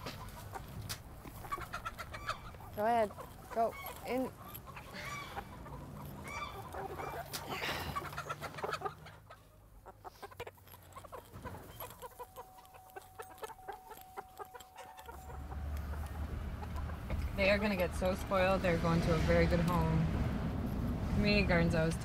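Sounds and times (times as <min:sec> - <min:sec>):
hens clucking and squawking: 0:00.0 - 0:18.9
faint steady tone: 0:11.7 - 0:18.2.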